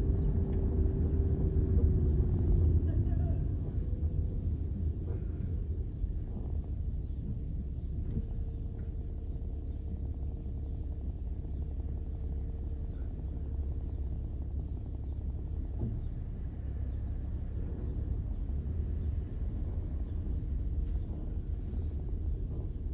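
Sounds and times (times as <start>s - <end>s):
car driving rumble: 0.0s - 22.9s.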